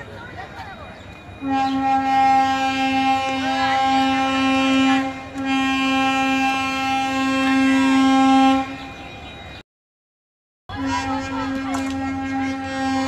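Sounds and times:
train horn: 1.4 - 9.1, 10.7 - 13.0.

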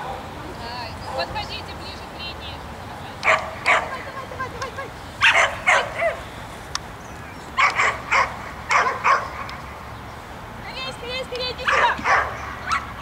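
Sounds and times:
dog barking: 0.0 - 0.3, 3.2 - 4.0, 5.2 - 6.2, 7.6 - 9.6, 11.6 - 13.0.

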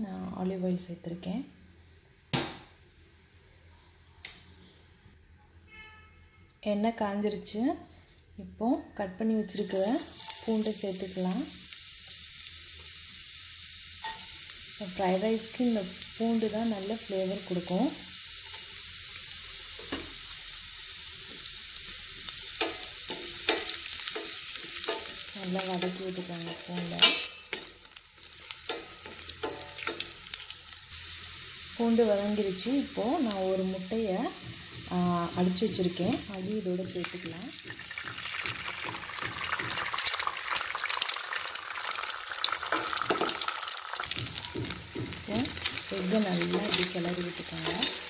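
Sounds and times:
garlic sizzling in oil: 9.4 - 48.0
oil popping: 37.6 - 45.8.

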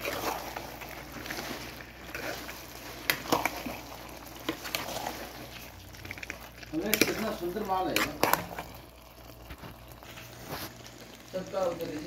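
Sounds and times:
spatula squishing and scraping food: 0.0 - 12.0.

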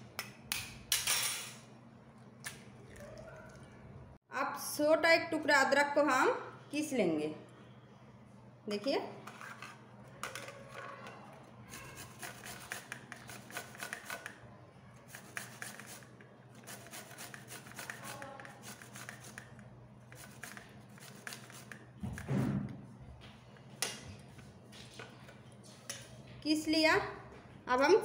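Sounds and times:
ginger rasping on a metal grater: 11.7 - 14.2, 15.1 - 19.4.

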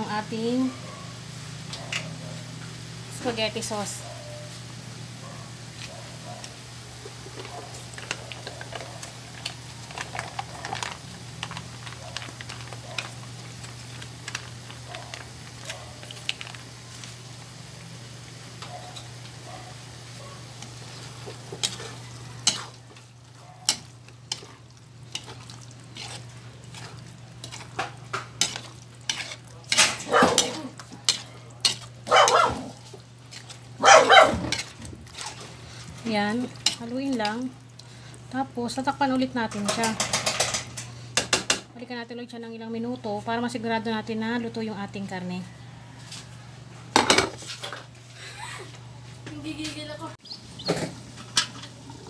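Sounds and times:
meat sauce frying: 0.0 - 45.0
spatula scraping a pan: 20.8 - 32.1, 32.8 - 33.7, 34.4 - 37.4.

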